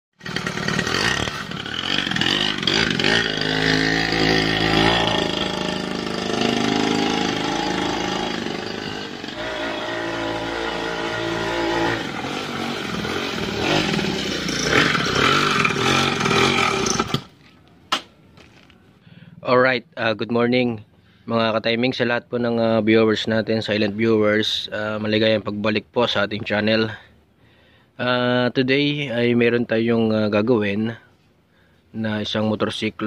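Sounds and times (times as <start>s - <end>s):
small two-stroke engine revving: 0.2s - 17.4s.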